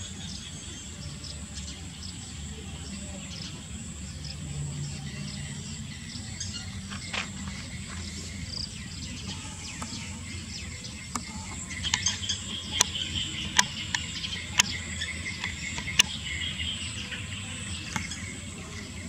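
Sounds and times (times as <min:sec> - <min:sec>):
insects chirping: 0:00.0 - 0:19.0
insects droning: 0:00.0 - 0:19.0
sharp clicks: 0:11.1 - 0:16.3.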